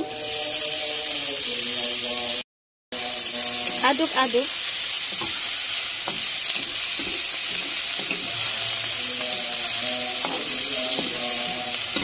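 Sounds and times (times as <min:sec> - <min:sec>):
vegetables sizzling in hot oil: 0:00.0 - 0:02.4, 0:03.0 - 0:12.0
spatula scraping a wok: 0:03.0 - 0:12.0.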